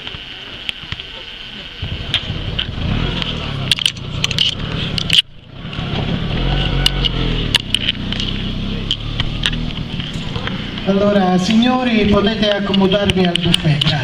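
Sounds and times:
faint voices: 0:00.0 - 0:02.8, 0:08.2 - 0:14.0
steady low rumble: 0:00.0 - 0:14.0.

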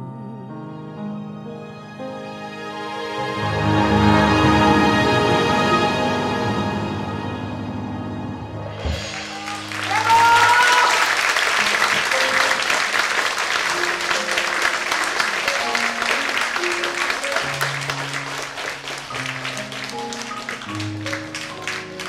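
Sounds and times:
keyboard sustained notes: 0:00.0 - 0:22.0
audience applauding: 0:08.9 - 0:22.0.

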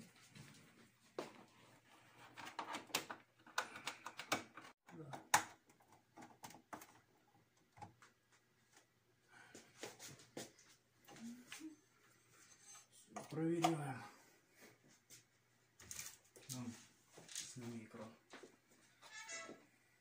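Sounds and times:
cables and plugs clicking: 0:02.4 - 0:08.2.

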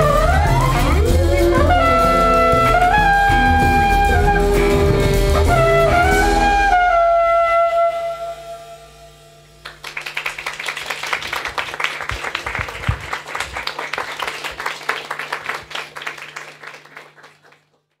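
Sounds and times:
flugelhorn note: 0:00.0 - 0:09.6
audience applauding: 0:09.6 - 0:18.0.

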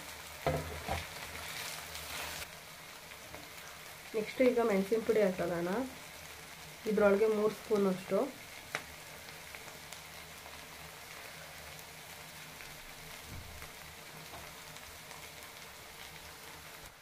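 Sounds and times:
onions sizzling in hot oil: 0:00.0 - 0:17.0.

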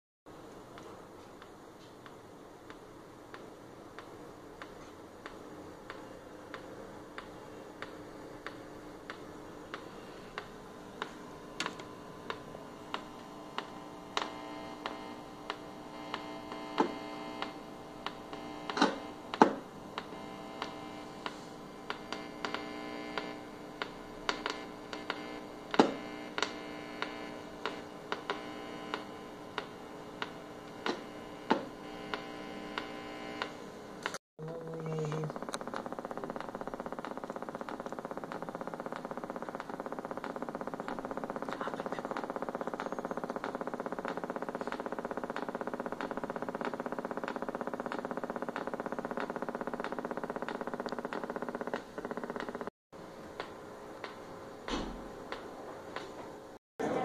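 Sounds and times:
television electrical hum: 0:00.3 - 0:57.0.

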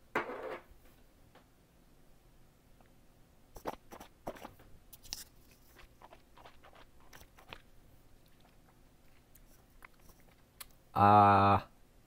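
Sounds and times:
fingers brushing microphone: 0:03.6 - 0:07.6, 0:09.4 - 0:10.4
lip and tongue clicks: 0:05.8 - 0:10.8.

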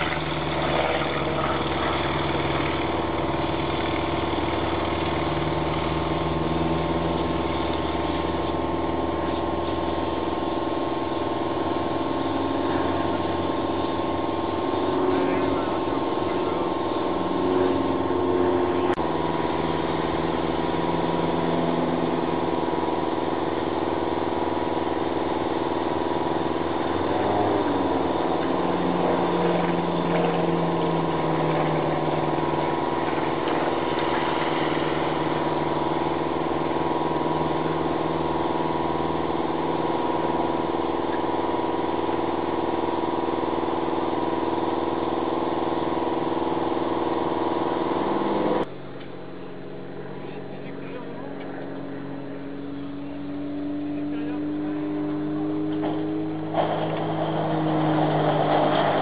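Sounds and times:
light plane engine droning: 0:48.4 - 0:59.0.

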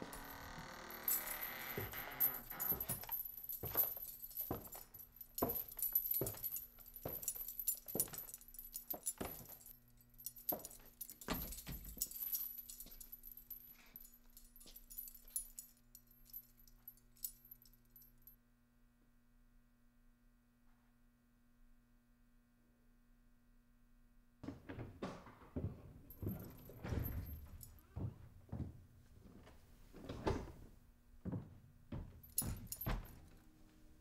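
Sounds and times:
knocks with metallic jingle: 0:00.1 - 0:17.7, 0:26.1 - 0:27.8, 0:32.0 - 0:33.4.

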